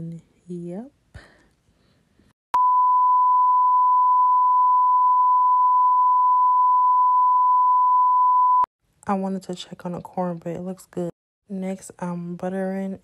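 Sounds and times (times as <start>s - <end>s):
loud high test tone beep: 2.6s - 8.7s.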